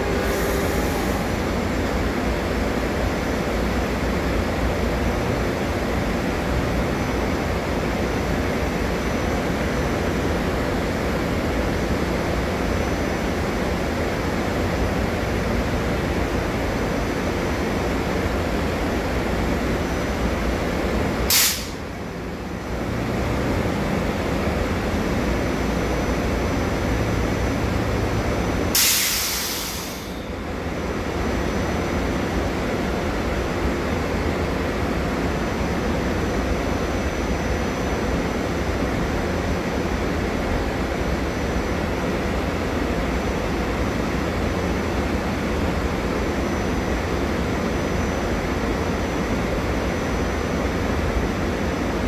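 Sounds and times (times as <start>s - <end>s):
electric train idling: 0.0s - 52.0s
brake air hiss: 21.3s - 21.8s, 28.7s - 30.2s.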